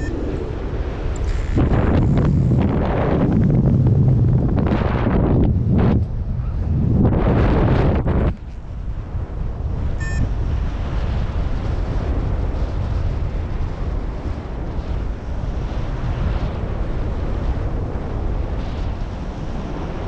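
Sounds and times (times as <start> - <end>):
wind buffeting microphone: 0.0 - 20.0
short electronic beep: 10.0 - 10.3.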